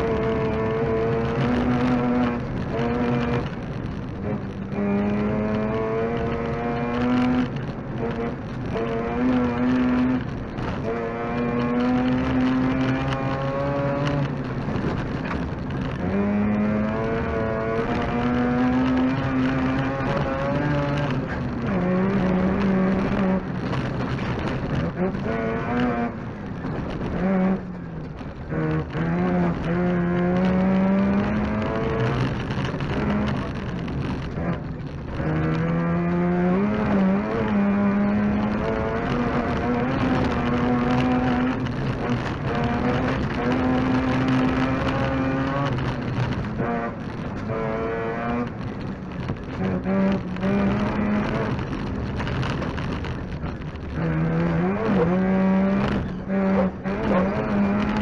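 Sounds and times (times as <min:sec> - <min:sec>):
rotary engine revving: 0:28.3 - 0:58.0.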